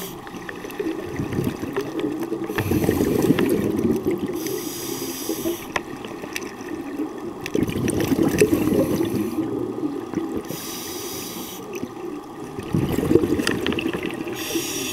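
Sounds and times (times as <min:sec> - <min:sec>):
regulator inhale hiss: 0:00.0 - 0:00.3, 0:02.5 - 0:03.6, 0:04.3 - 0:05.8, 0:08.4 - 0:09.6, 0:10.4 - 0:11.8, 0:14.3 - 0:14.9
exhaled bubbles rumbling: 0:00.2 - 0:10.6, 0:11.7 - 0:14.8.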